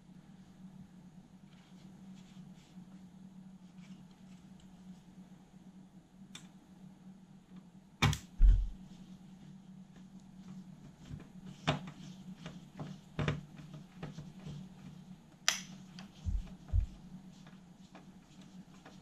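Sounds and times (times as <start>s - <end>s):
steady low hum: 0.0s - 19.0s
heavier knock: 8.4s - 8.8s.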